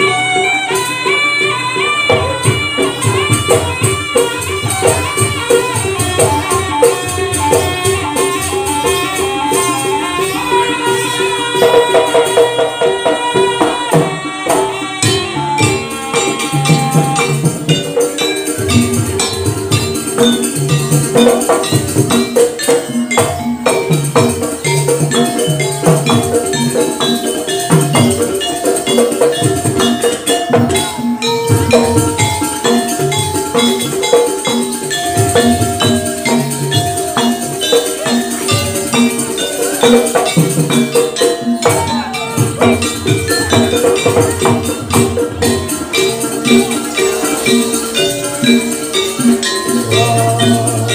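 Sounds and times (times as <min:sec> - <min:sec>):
bright metallic jingle: 0:00.0 - 0:50.9
drums beating: 0:00.0 - 0:50.9
tuned percussion melody: 0:00.0 - 0:50.9.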